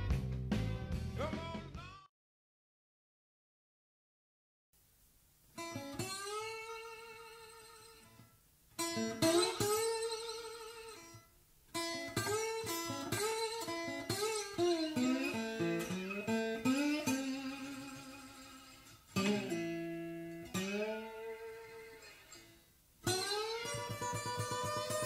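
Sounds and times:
solo blues guitar: 0:05.6 - 0:25.0.

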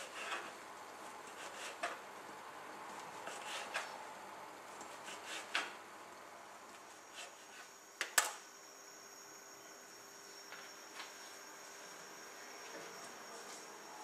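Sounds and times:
knife cutting bread on board: 0:03.2 - 0:03.9
high-pitched whine: 0:06.9 - 0:14.0.

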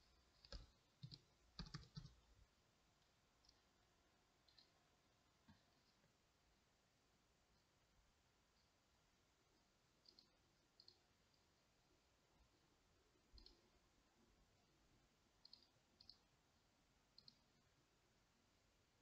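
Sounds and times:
computer mouse clicks: 0:00.3 - 0:02.2, 0:04.4 - 0:04.8, 0:10.0 - 0:11.1, 0:13.3 - 0:13.6, 0:15.4 - 0:16.3, 0:17.1 - 0:17.5.

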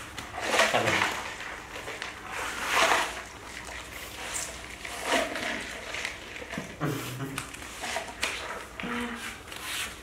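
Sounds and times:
plastic bowl scraping on mat: 0:00.3 - 0:03.3.

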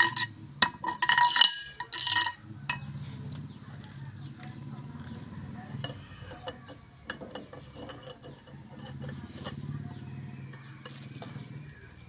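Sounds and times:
metal brake parts clattering: 0:00.0 - 0:03.0.

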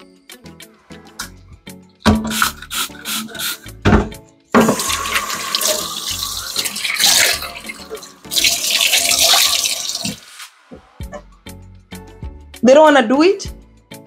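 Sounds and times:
tap water splashing into sink: 0:04.6 - 0:10.2.

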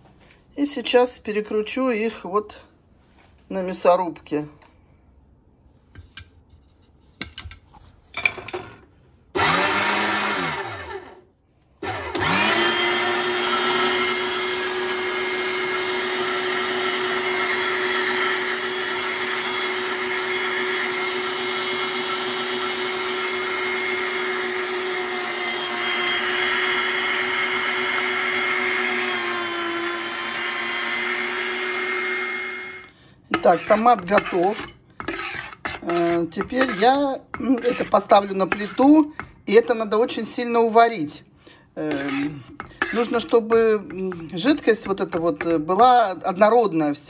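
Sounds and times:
electric meat grinder motor: 0:09.4 - 0:11.2, 0:11.8 - 0:32.9.

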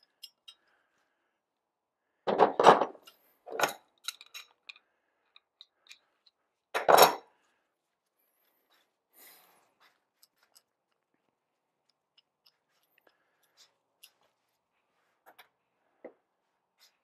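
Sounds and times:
metal tools clanking on workbench: 0:06.8 - 0:07.3.

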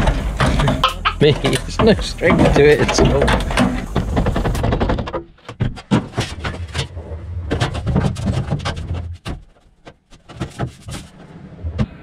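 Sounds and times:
low steady hum: 0:00.0 - 0:04.6
sheet metal clattering: 0:00.0 - 0:06.9.

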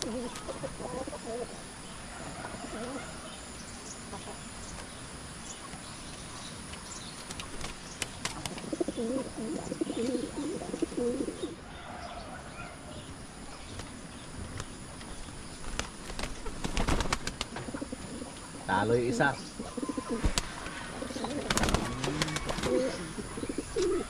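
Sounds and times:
pigeon cooing: 0:00.0 - 0:01.6, 0:02.2 - 0:03.3, 0:08.5 - 0:11.6, 0:17.6 - 0:24.0
pigeon wings slapping and flapping: 0:07.3 - 0:08.7, 0:15.6 - 0:17.8, 0:20.1 - 0:22.9.

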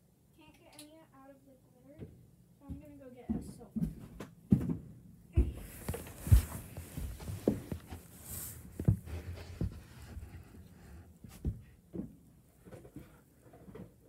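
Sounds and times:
fabric rustling: 0:05.5 - 0:11.4.

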